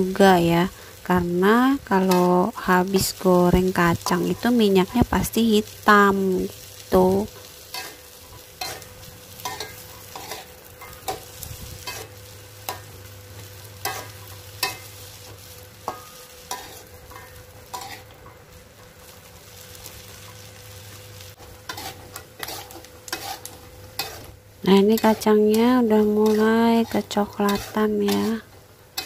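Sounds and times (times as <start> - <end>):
faint sizzle: 0.0 - 29.0
metal spatula scraping a wok: 6.7 - 18.5, 21.4 - 29.0.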